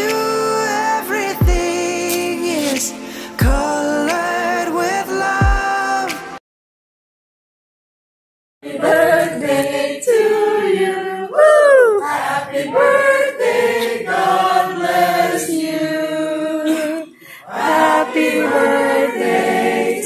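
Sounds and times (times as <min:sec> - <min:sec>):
group of voices singing: 0:00.0 - 0:06.4, 0:08.6 - 0:20.0.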